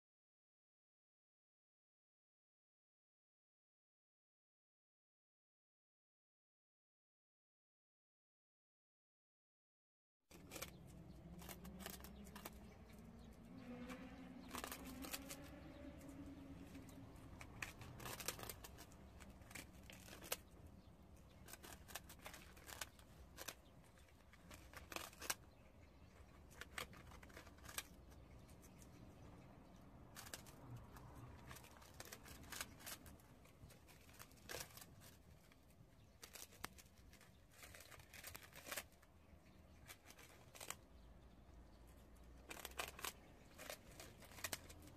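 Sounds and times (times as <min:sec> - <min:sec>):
prairie dogs crunching rice cakes: 0:10.3 - 0:44.9.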